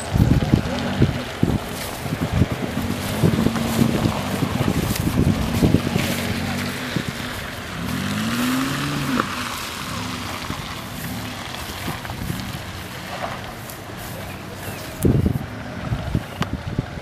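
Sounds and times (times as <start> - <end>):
suv engine revving: 0.0 - 17.0.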